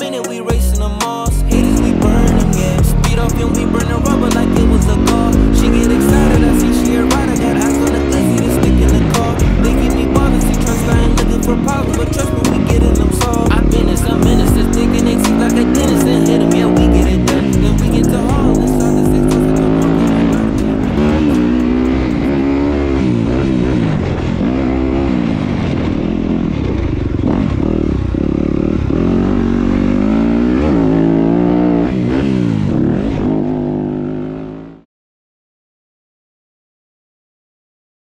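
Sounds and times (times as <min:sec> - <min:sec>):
music: 0:00.0 - 0:22.6
dirt bike engine revving: 0:00.6 - 0:34.8.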